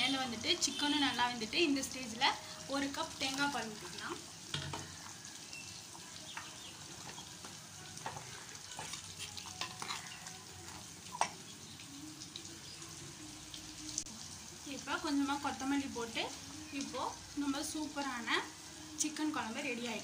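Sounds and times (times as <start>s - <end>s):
ladle scraping clay pot: 8.0s - 10.4s.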